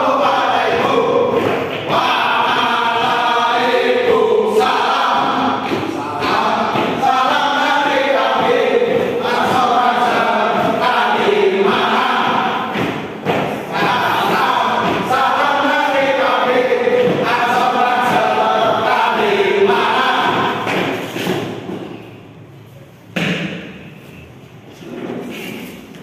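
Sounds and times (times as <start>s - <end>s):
men singing a cheer in unison: 0.0s - 20.8s
loud thump: 23.1s - 23.8s.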